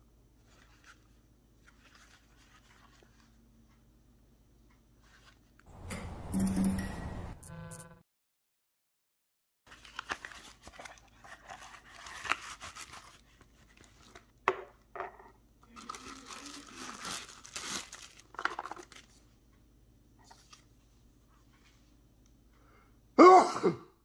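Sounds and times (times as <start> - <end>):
plastic wrapping crinkling: 9.7 - 14.3, 15.6 - 19.2.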